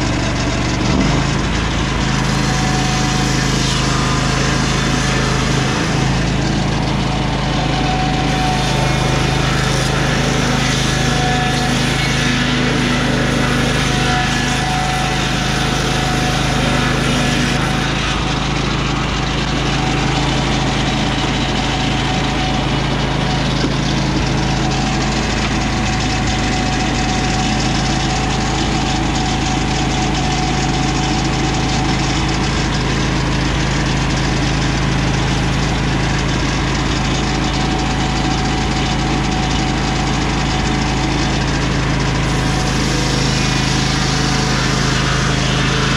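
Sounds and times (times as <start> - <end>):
circular saw ripping a log: 0.0 - 45.9
sawmill engine running under load: 0.0 - 45.9.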